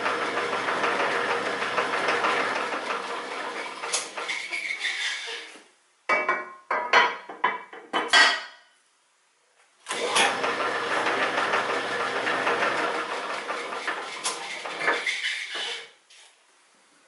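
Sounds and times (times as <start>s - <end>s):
lathe running: 0.0s - 4.2s, 9.9s - 15.7s.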